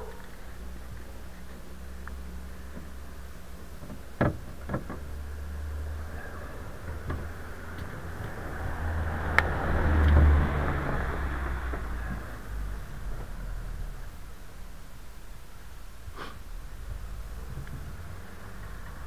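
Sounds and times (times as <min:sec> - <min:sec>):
passing car: 0:01.7 - 0:14.7, 0:16.4 - 0:19.0
sharp clicks and knocks: 0:03.8 - 0:05.1.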